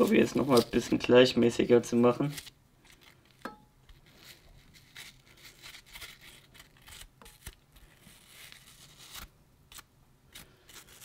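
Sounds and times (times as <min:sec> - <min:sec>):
knife scraping apple flesh: 0:00.0 - 0:01.1, 0:03.4 - 0:11.0.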